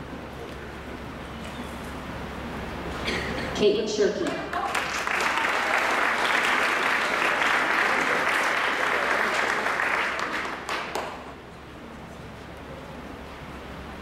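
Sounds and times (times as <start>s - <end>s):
audience applauding: 4.4s - 11.4s.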